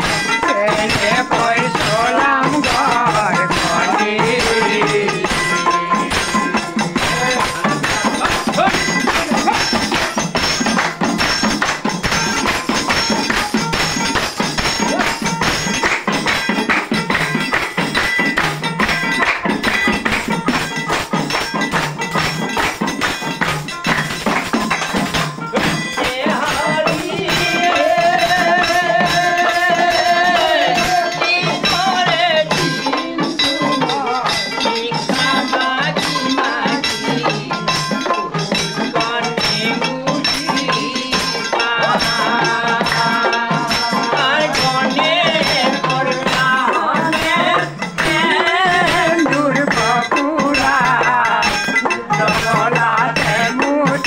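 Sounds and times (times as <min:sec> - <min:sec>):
men singing folk song: 0:00.0 - 0:10.1, 0:25.6 - 0:54.0
hand percussion clicking and jingling: 0:00.0 - 0:54.0.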